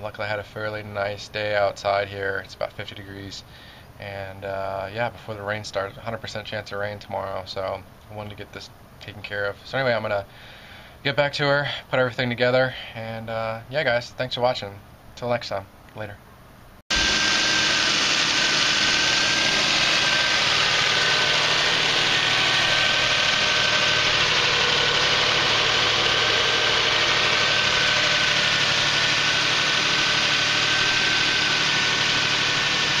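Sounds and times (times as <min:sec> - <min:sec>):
car engine idling: 0:16.9 - 0:33.0.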